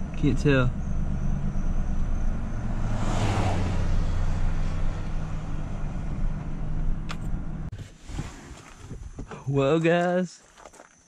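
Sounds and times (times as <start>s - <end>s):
truck engine and road hum: 0.0s - 7.8s
passing truck whoosh: 0.7s - 7.7s.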